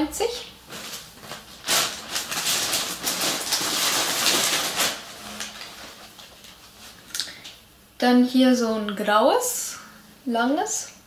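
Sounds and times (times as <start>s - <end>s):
clothes rustling: 0.7s - 7.1s.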